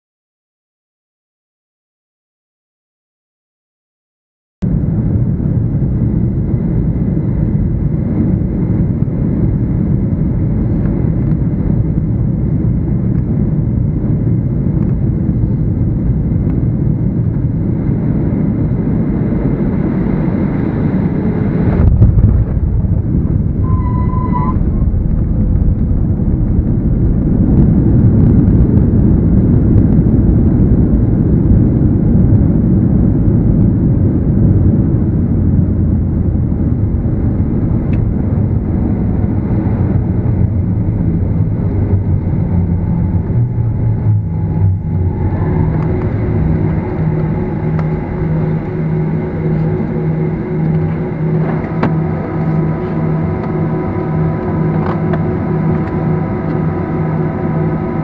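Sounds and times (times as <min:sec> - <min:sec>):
jet engines and airflow roar: 0:04.6 - 0:58.0
engines reverse thrust roar: 0:17.4 - 0:58.0
brief high tone: 0:23.6 - 0:24.8.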